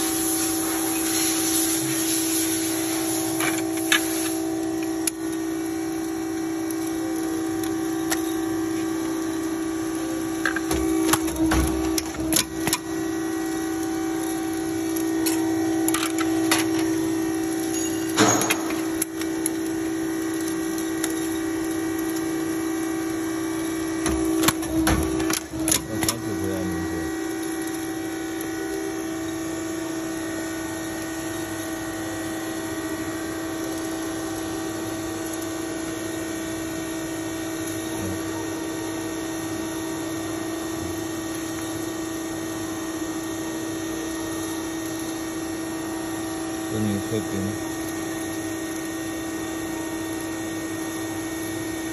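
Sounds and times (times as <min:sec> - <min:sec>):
hydraulic machine humming: 0:00.0 - 0:51.9
sharp metal clanks and clicks: 0:17.7 - 0:19.3.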